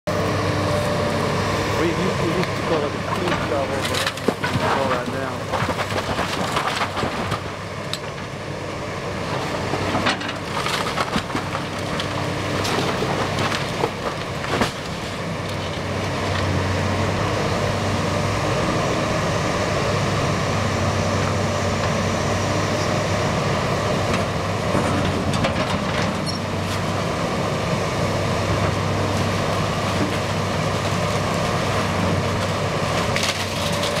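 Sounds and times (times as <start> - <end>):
excavator diesel engine: 0.1 - 34.0
wood cracking and splintering: 1.8 - 8.3, 9.2 - 17.3, 28.0 - 34.0
debris crashing: 2.7 - 7.5, 9.7 - 15.8, 29.3 - 34.0.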